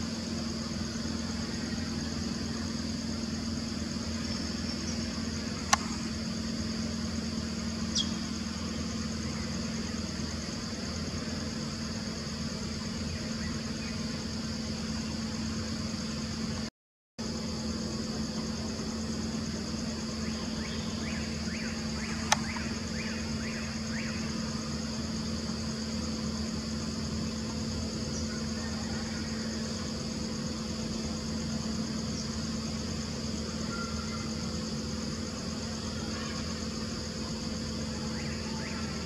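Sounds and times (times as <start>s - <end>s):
high-pitched whine: 0.0s - 16.7s
low even hum: 0.0s - 39.0s
sharp click: 5.6s - 6.0s, 22.2s - 22.7s.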